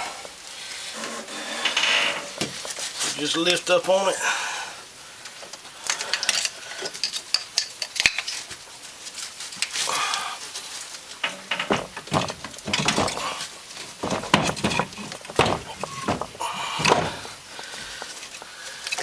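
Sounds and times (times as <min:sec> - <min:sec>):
metal clanks and knocks: 0:11.2 - 0:17.4
metal scraping: 0:11.2 - 0:17.4.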